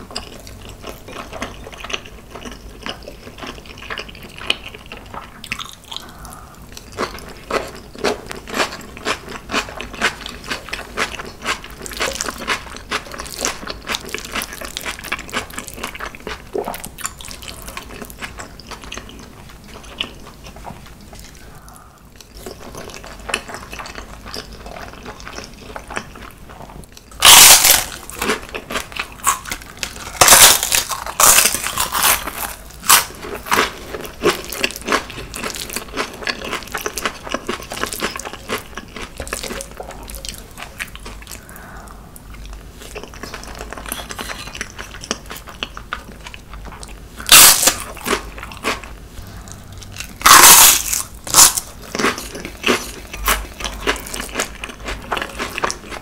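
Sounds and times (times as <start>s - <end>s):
chewing: 0.0s - 56.0s
crunching bites of chip: 27.1s - 41.4s, 47.2s - 48.9s, 49.9s - 56.0s.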